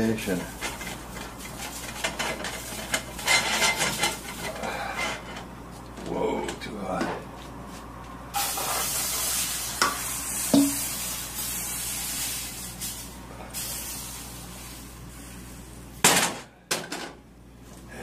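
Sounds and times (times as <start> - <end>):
batter sizzling in skillet: 0.0 - 4.5, 8.3 - 15.8
skillet knocking on burner: 10.5 - 10.8.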